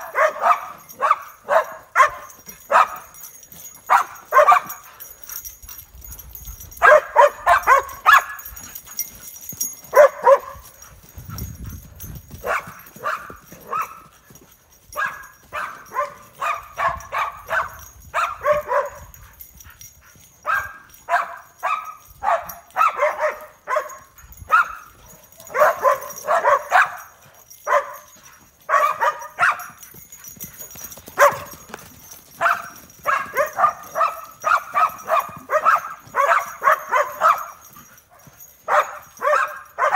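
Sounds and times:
dogs barking: 0:00.0 - 0:05.5, 0:06.1 - 0:11.0, 0:12.4 - 0:14.2, 0:14.9 - 0:31.7, 0:32.3 - 0:39.9.

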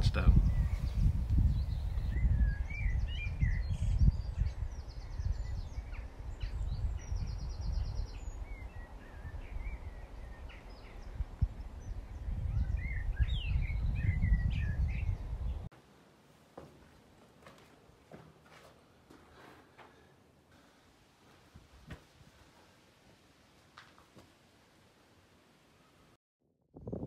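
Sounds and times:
small birds chirping: 0:00.0 - 0:15.7
wind buffeting microphone: 0:00.0 - 0:15.7, 0:26.8 - 0:27.0.

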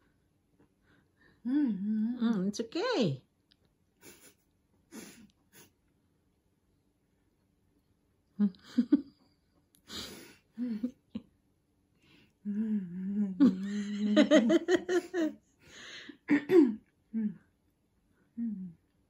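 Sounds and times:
girl humming: 0:01.4 - 0:02.2, 0:12.4 - 0:14.0, 0:18.4 - 0:18.9
girl giggling: 0:08.4 - 0:09.2, 0:10.1 - 0:11.2, 0:13.1 - 0:15.4
girl breathing: 0:15.6 - 0:16.2.

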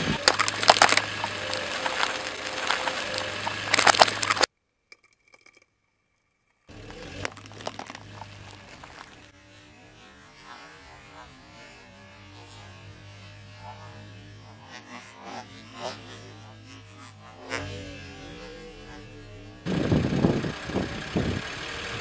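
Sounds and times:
car idling hum: 0:00.0 - 0:04.5, 0:06.7 - 0:09.3, 0:18.7 - 0:22.0
tyre crushing plastic cups: 0:00.0 - 0:04.5, 0:06.7 - 0:09.3.

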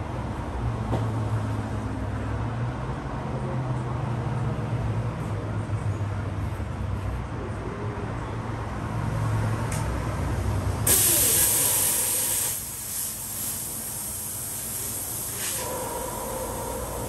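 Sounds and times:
compressed air hissing: 0:10.9 - 0:17.0.

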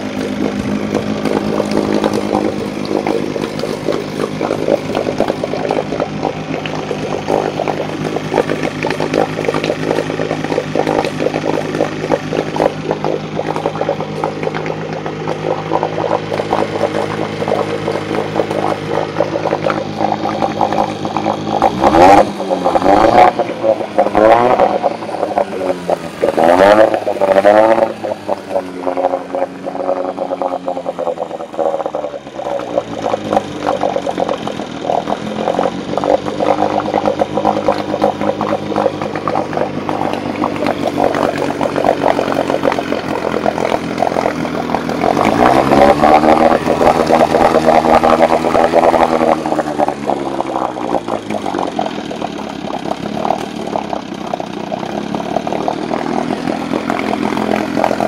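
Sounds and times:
outboard motor running: 0:00.0 - 0:58.0.

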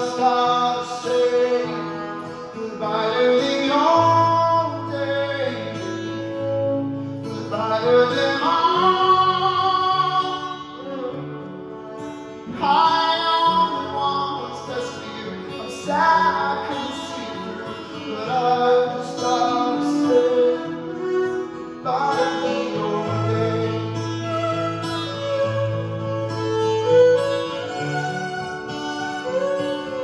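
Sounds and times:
man singing wordless notes: 0:00.0 - 0:11.2, 0:12.4 - 0:25.2
acoustic guitar: 0:00.0 - 0:30.0
violin playing: 0:00.0 - 0:30.0.

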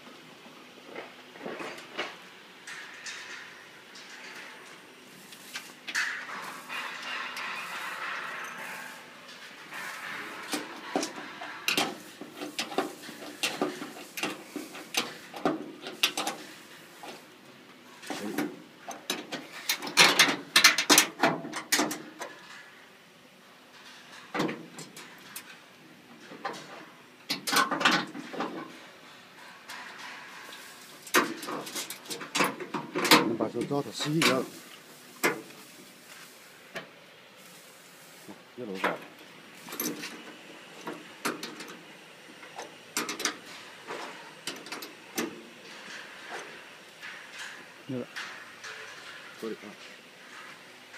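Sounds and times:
metallic clicks and clatter: 0:01.4 - 0:04.9, 0:05.6 - 0:17.2, 0:17.9 - 0:22.8.

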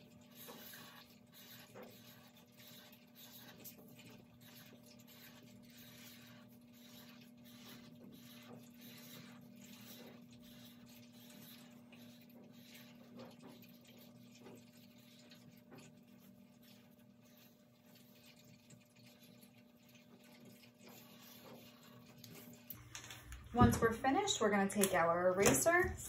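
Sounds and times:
marker scratching on paper: 0:04.4 - 0:12.9.

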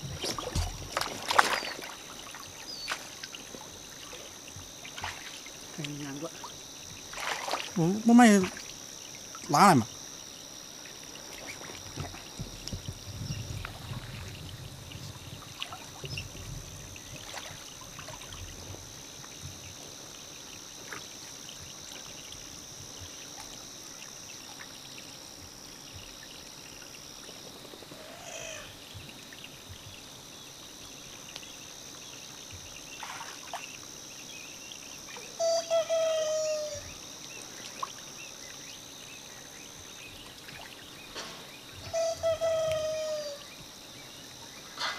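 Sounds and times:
muddy water sloshing: 0:00.0 - 0:09.8, 0:10.9 - 0:19.0, 0:33.0 - 0:33.8.

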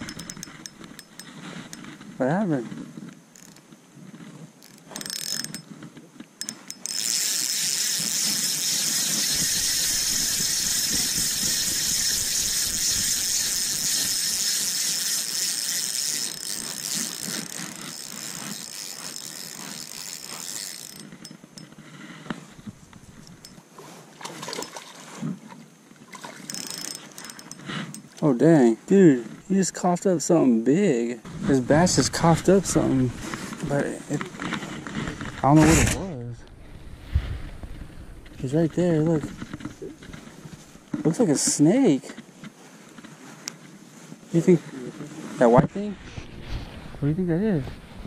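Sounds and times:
fishing reel gears whirring: 0:00.0 - 0:01.9, 0:03.3 - 0:03.6, 0:04.6 - 0:05.8, 0:06.4 - 0:21.8, 0:22.5 - 0:23.6, 0:26.2 - 0:28.3.

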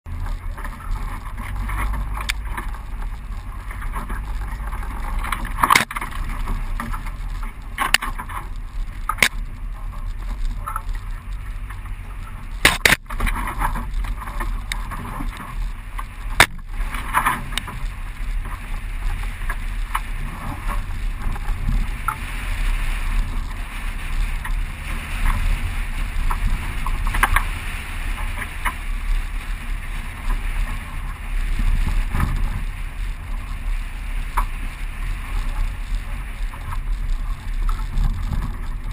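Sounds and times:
vehicle low rumble: 0:00.0 - 0:38.9.

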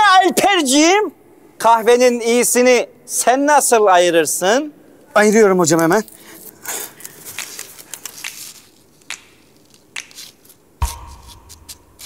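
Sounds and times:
sudden low thump: 0:10.8 - 0:12.0.

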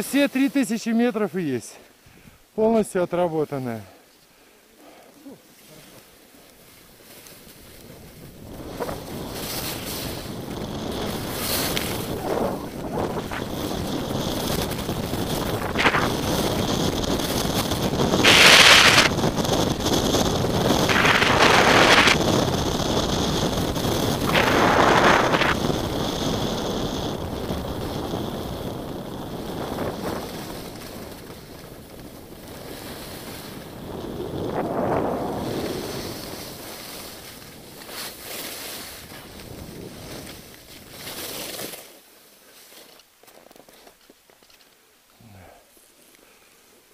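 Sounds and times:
ski edges scraping: 0:00.0 - 0:01.7, 0:05.3 - 0:44.8
skis hissing over snow: 0:00.0 - 0:02.8, 0:04.8 - 0:44.6
wind rushing on microphone: 0:07.7 - 0:38.2, 0:38.8 - 0:41.0.

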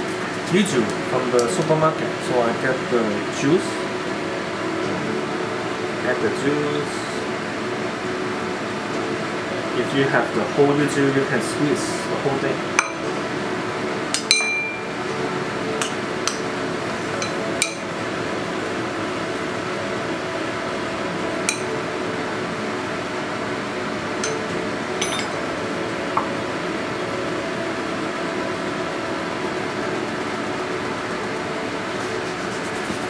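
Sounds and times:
spoon clinking on ceramic bowl: 0:14.2 - 0:14.8, 0:25.0 - 0:25.3.

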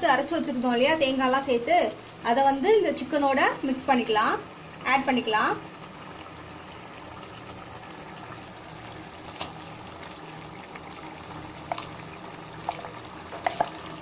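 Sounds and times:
chicken simmering bubbling: 0:03.4 - 0:14.0
spoon tapping pot: 0:12.6 - 0:13.8.

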